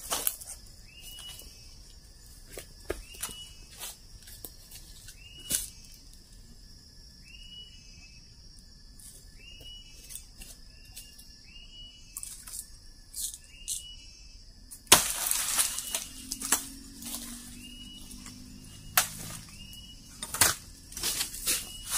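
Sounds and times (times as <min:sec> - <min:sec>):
insects humming: 0:00.0 - 0:21.9
machete cutting plant stalk: 0:14.9 - 0:17.2, 0:18.2 - 0:19.6, 0:20.2 - 0:21.8.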